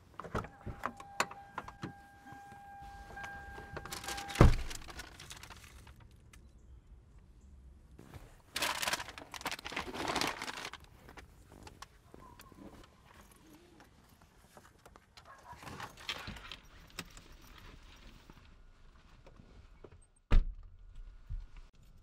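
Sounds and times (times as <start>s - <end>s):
car door warning tone: 0.2s - 4.9s
paper bag crinkling: 3.8s - 6.0s, 8.0s - 11.8s
car door thumping shut: 4.4s - 4.8s.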